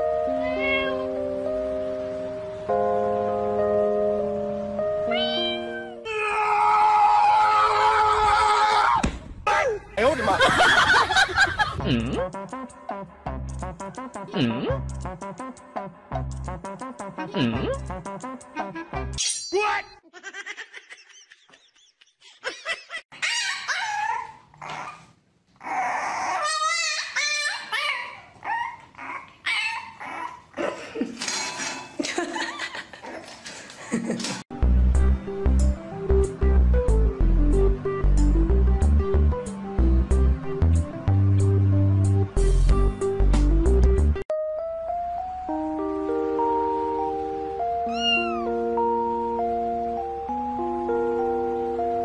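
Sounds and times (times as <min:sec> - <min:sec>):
background music held notes: 0:00.0 - 0:06.1, 0:10.9 - 0:19.2, 0:34.5 - 0:52.0
puppy yelping and barking: 0:23.1 - 0:30.5, 0:47.9 - 0:48.5
dog whining: 0:23.1 - 0:30.6, 0:47.8 - 0:48.6
dog whine-howl: 0:47.9 - 0:48.6.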